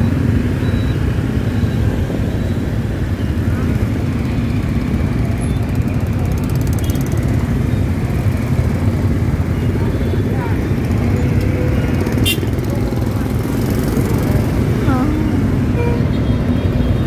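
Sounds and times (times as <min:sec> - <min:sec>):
motor scooters in traffic: 0:00.0 - 0:17.0.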